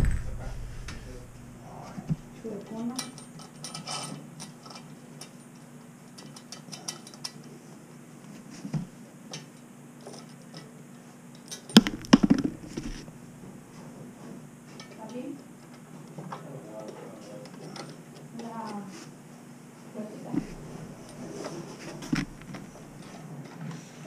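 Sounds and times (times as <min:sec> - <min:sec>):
clatter of knocks: 0:11.7 - 0:13.0.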